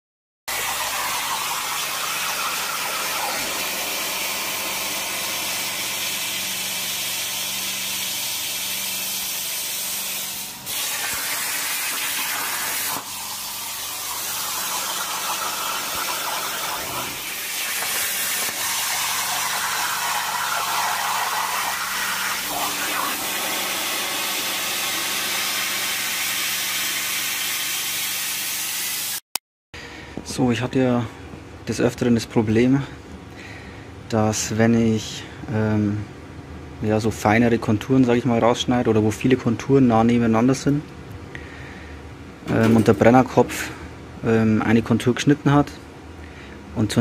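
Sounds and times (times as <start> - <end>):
plasma torch hissing: 0.5 - 29.2.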